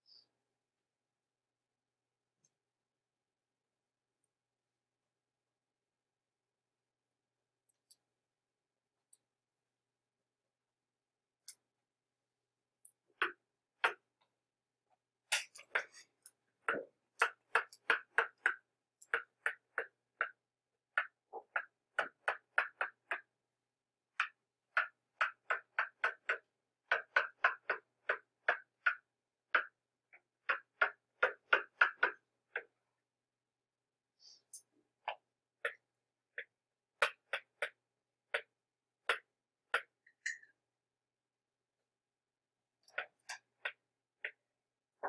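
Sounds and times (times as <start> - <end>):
stylus tapping on tablet screen: 12.8 - 14.3, 15.3 - 23.4, 24.1 - 32.8, 34.6 - 40.6, 42.8 - 44.5.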